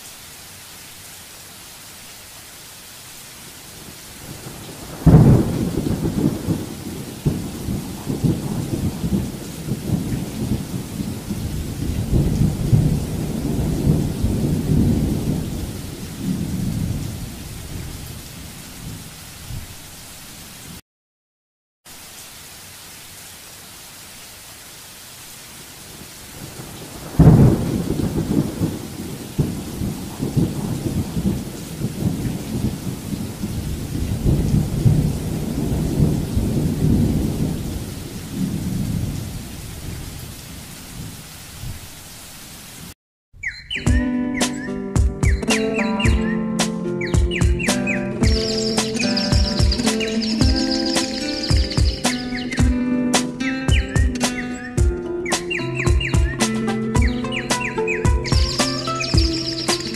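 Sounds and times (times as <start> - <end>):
steady rain: 0.0 - 20.8, 21.9 - 43.0, 46.7 - 54.6, 55.8 - 59.9
thunder rumbling: 3.8 - 19.7, 26.3 - 41.8.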